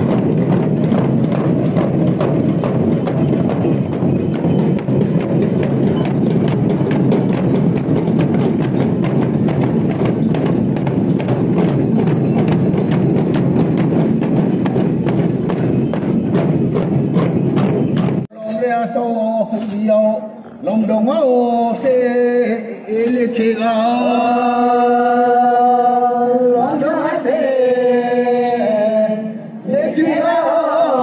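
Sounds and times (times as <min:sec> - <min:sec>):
barrel drums beaten with sticks: 0:00.0 - 0:18.3.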